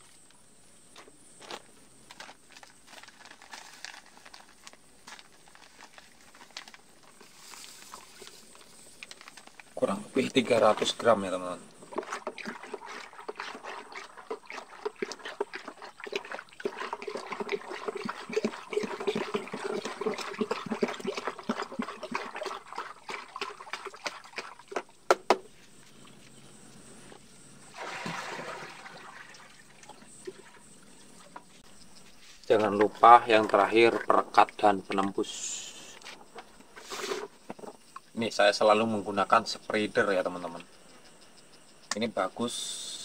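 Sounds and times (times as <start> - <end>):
water sloshing in bucket: 2.5 - 25.0, 27.6 - 31.6, 32.5 - 35.5
dripping water: 11.6 - 24.9, 27.7 - 30.6
liquid pouring: 11.8 - 24.8, 27.7 - 30.6.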